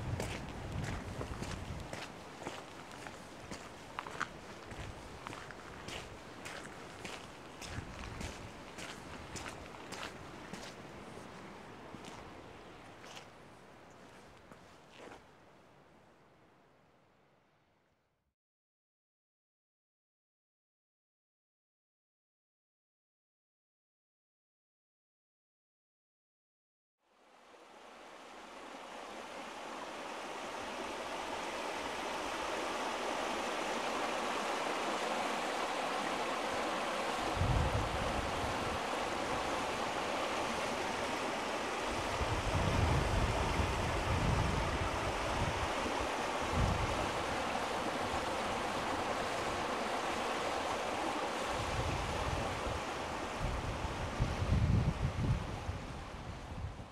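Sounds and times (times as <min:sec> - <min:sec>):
wind buffeting microphone: 0:00.0 - 0:10.7, 0:37.2 - 0:39.9, 0:41.9 - 0:49.8, 0:51.5 - 0:56.9
flowing water rushing: 0:00.0 - 0:15.0, 0:27.2 - 0:56.8.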